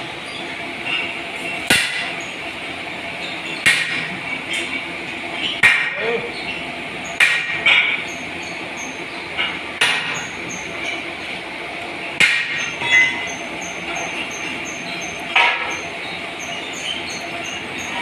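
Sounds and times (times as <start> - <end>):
workshop din: 0.0 - 18.0.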